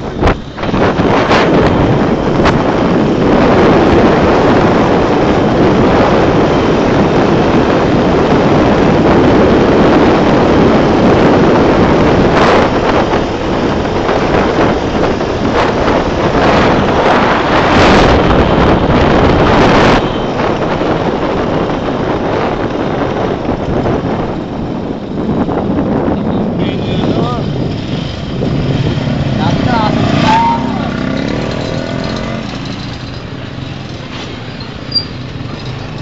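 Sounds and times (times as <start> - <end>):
road noise: 0.0 - 36.0
wind buffeting on microphone: 0.0 - 36.0
tricycle engine running: 20.4 - 36.0.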